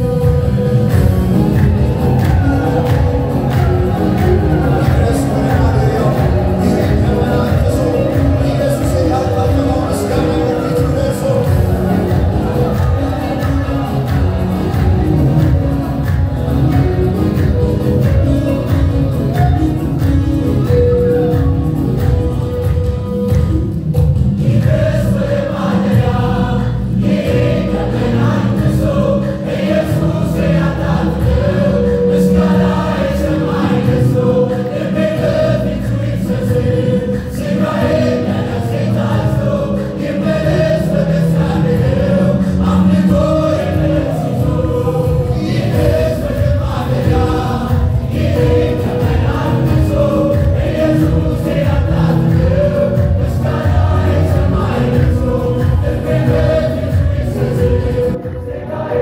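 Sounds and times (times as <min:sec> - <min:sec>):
choir singing a hymn: 0:00.0 - 0:59.0.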